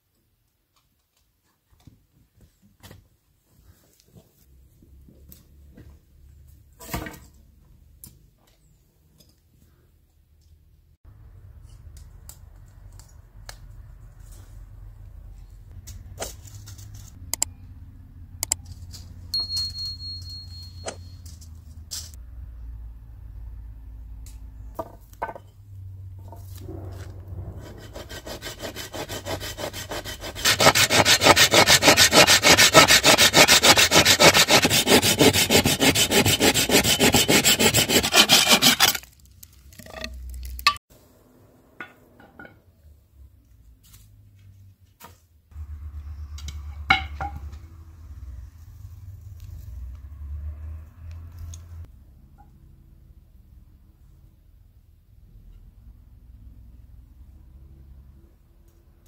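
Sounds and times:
rasping strokes: 27.5s - 39.1s.

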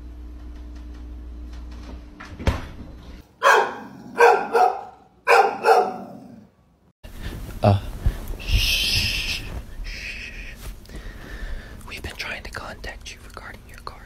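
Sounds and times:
dog barking: 3.4s - 6.4s
steady low hum: 7.1s - 14.0s.

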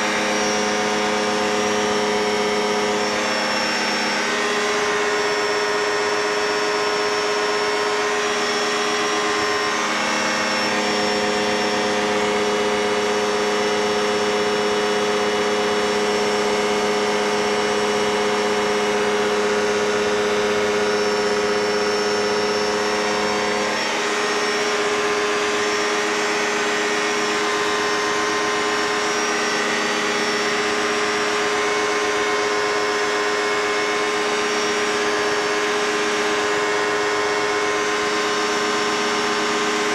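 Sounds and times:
propeller aircraft engine running: 0.0s - 39.9s.

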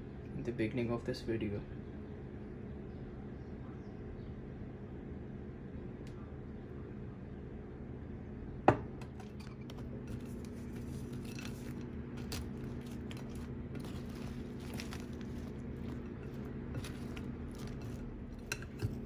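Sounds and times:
low hum: 1.6s - 19.0s
spatula stirring in glass bowl: 9.2s - 19.0s.

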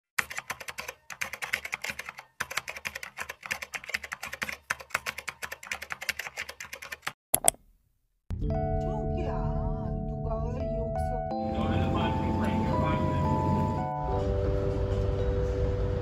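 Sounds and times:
fast typing on a keyboard: 0.2s - 7.2s.

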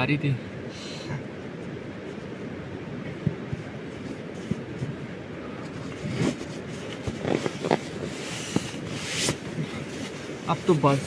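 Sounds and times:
low background rush: 0.0s - 11.0s
nylon fabric rustling: 3.6s - 11.0s.

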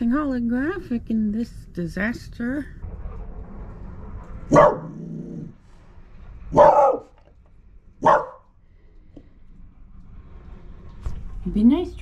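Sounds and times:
dog barking: 4.5s - 5.0s, 6.5s - 7.2s, 8.0s - 8.5s.

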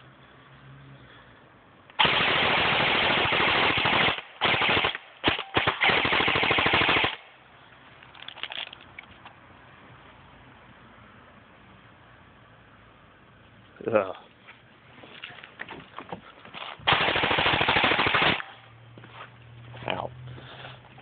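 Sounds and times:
airsoft rifle automatic fire: 2.0s - 7.2s, 16.9s - 18.6s.

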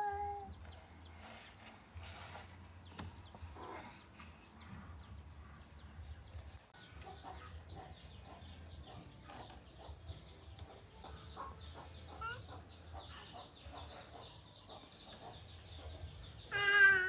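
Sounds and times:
chickens clucking: 2.7s - 16.5s.

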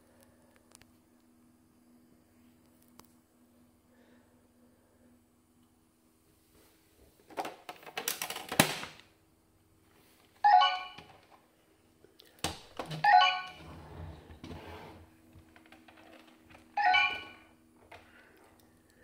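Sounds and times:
short electronic chimes: 10.5s - 11.1s, 13.1s - 13.7s, 16.8s - 17.5s.

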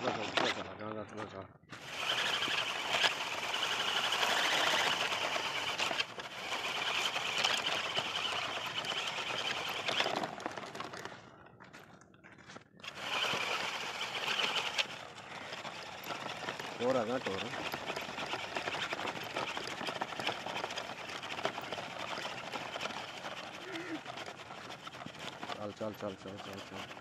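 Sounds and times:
toy tractor motor whining: 0.0s - 0.8s, 1.7s - 11.3s, 12.8s - 27.0s.

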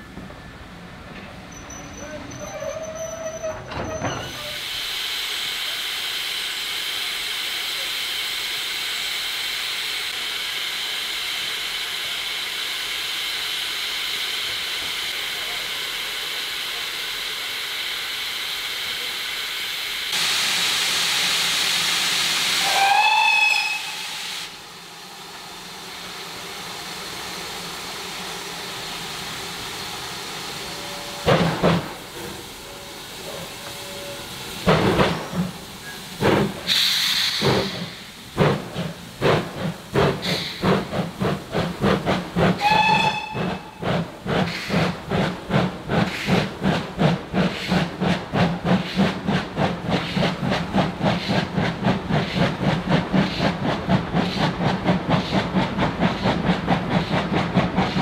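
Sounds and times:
steam hissing: 2.5s - 58.0s
steam locomotive whistle: 22.5s - 24.5s, 42.6s - 43.8s.

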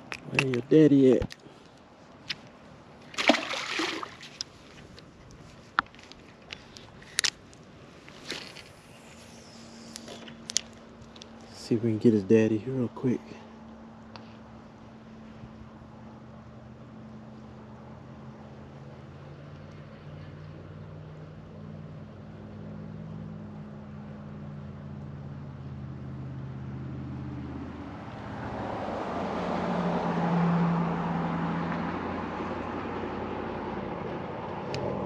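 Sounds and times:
motor engine passing by: 15.9s - 35.0s.

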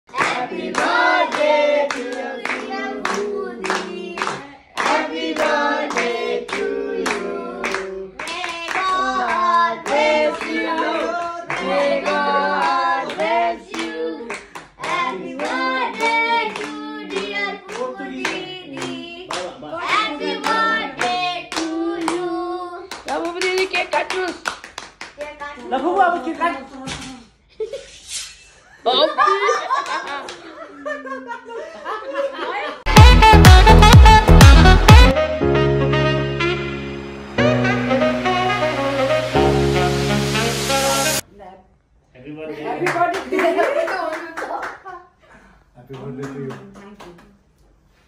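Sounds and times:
rhythmic hand clapping: 0.1s - 22.2s, 22.9s - 25.7s, 32.9s - 35.2s
person singing: 0.2s - 22.7s, 32.9s - 41.2s.

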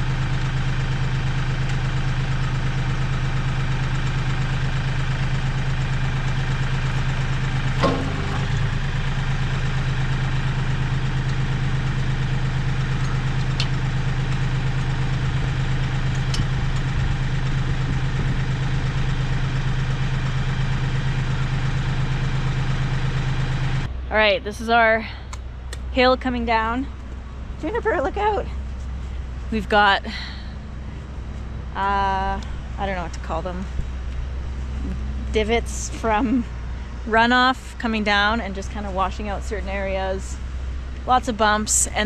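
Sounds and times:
tractor engine idling: 0.0s - 42.0s
metal clank: 7.8s - 8.7s.

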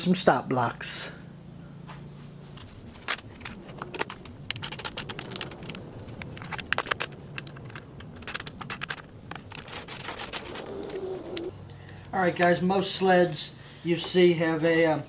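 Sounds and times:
acrylic blocks clicking on wood: 3.0s - 11.5s.

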